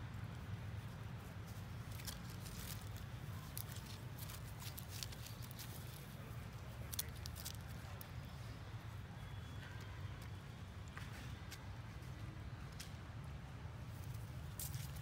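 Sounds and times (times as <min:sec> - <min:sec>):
feet scuffling in dry leaves: 0:00.8 - 0:07.8.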